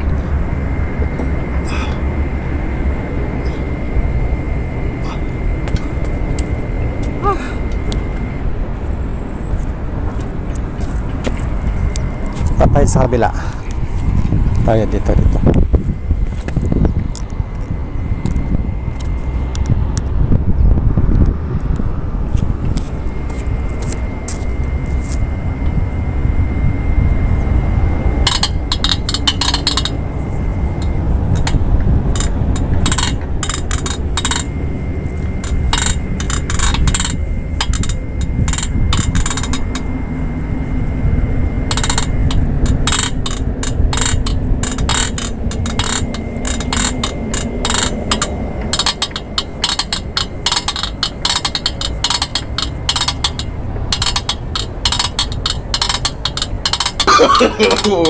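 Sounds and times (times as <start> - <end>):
wind rumble on microphone: 0.0 - 57.2
exercise machine metallic clicking: 28.2 - 40.5, 41.5 - 58.0.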